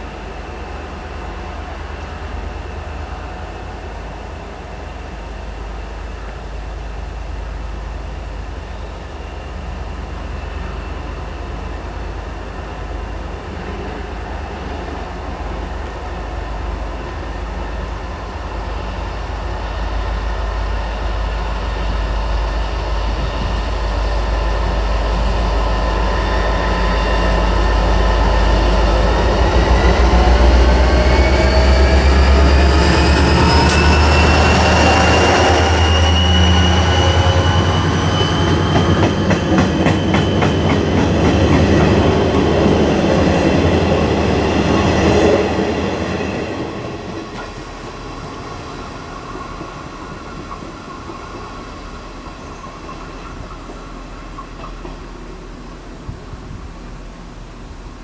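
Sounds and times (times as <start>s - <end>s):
train rolling: 0.0s - 58.0s
whining tones rising in pitch: 23.0s - 46.7s.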